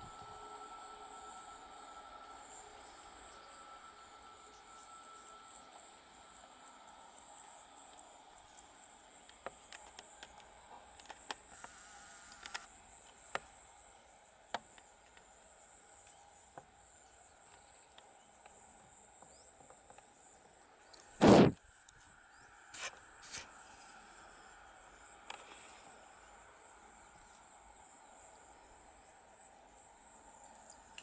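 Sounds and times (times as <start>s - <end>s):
high-pitched insect drone: 0.0s - 14.1s.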